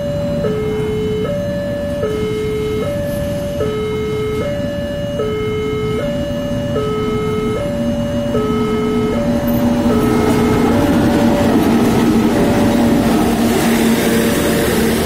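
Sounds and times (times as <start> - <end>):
level crossing two-tone alarm: 0.0 - 11.4
diesel locomotive rumble: 0.0 - 15.0.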